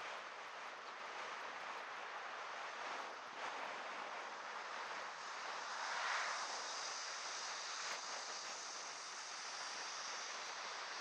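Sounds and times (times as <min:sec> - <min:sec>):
road noise: 0:04.4 - 0:11.0.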